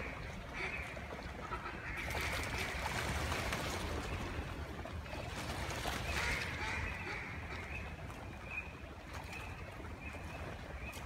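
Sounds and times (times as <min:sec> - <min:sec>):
ducks quacking: 0:00.0 - 0:02.9, 0:06.1 - 0:08.0.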